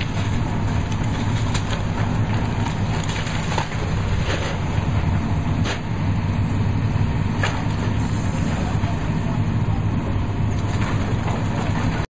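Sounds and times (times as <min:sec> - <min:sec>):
falling brick and debris crack: 0:00.0 - 0:04.6
excavator diesel engines running: 0:00.0 - 0:12.0.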